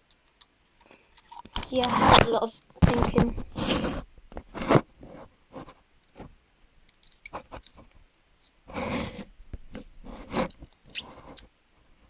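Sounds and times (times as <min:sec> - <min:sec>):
pen rubbing noise: 0:03.4 - 0:05.7, 0:08.7 - 0:11.4.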